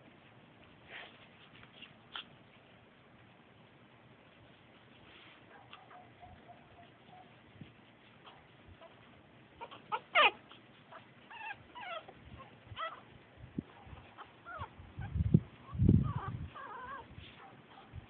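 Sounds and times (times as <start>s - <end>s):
puppies yelping and squeaking: 5.6s - 18.0s.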